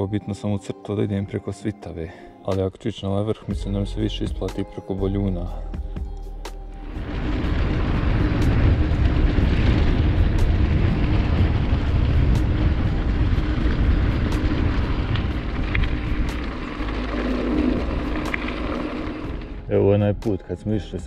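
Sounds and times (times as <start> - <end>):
wind rumbling on microphone: 6.8 - 21.0.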